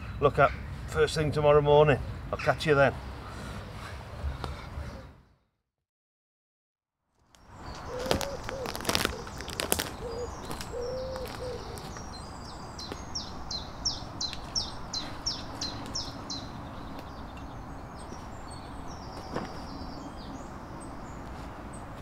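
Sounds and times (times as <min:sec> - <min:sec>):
outdoor background noise: 0:00.0 - 0:05.5, 0:07.0 - 0:22.0
low cooing bird call: 0:07.7 - 0:12.3.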